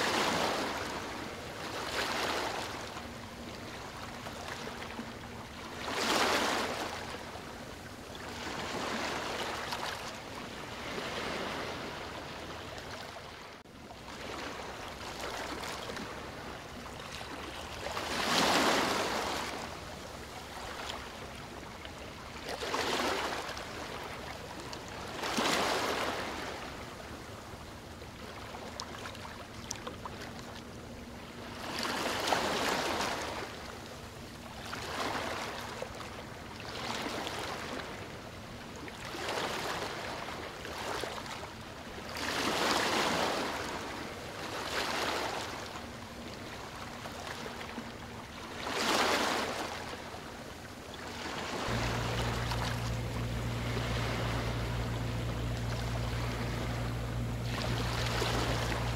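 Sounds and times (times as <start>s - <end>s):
steady low hum: 0.0s - 58.9s
rushing water: 51.1s - 58.9s.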